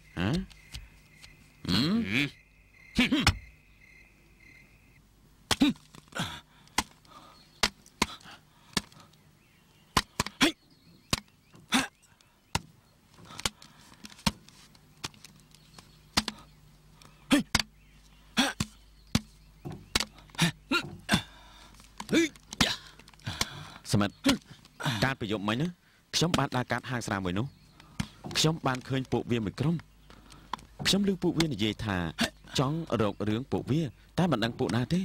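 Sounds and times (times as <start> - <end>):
bare-handed strikes and slaps: 3.1 - 3.5, 5.5 - 6.1, 6.7 - 7.0, 7.6 - 9.0, 9.9 - 11.3, 12.5 - 12.7, 16.1 - 16.4, 17.3 - 17.7, 18.4 - 21.2.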